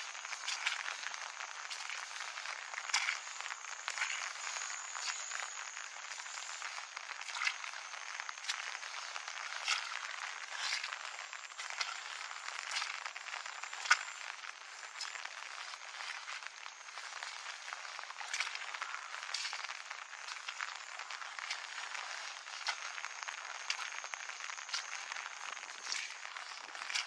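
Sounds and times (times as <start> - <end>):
footsteps on wet dirt: 0.0 - 27.0
rain hiss: 0.0 - 27.0.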